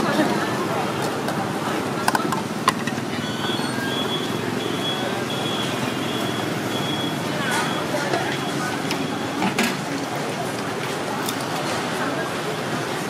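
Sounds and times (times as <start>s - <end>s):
background chatter: 0.0s - 13.0s
traffic noise: 0.0s - 13.0s
high electronic beep: 3.2s - 9.4s.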